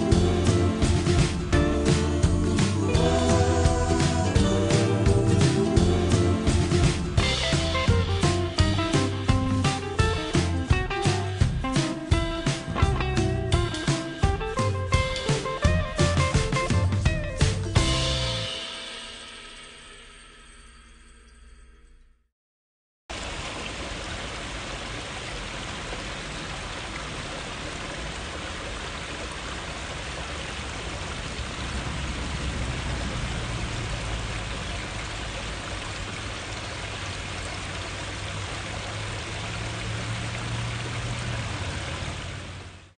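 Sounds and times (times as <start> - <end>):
waterfall splashing over stones: 23.1 - 43.0.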